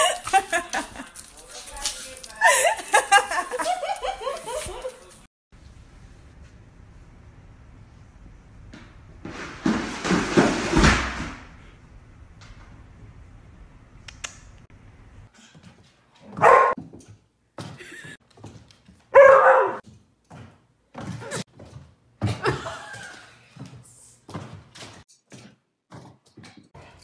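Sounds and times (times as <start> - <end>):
dog barking: 16.3 - 16.8, 19.1 - 19.8.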